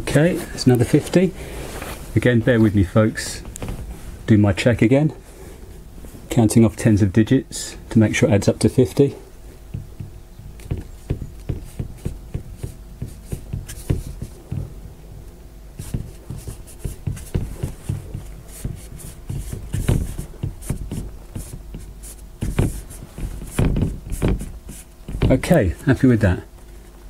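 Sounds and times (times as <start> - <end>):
marker tapping and scratching on board: 9.7 - 14.8, 15.8 - 25.6.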